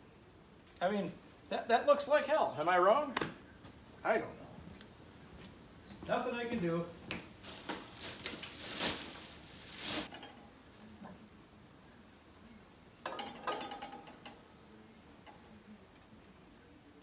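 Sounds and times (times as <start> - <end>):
rustling handling noise: 7.2 - 10.5.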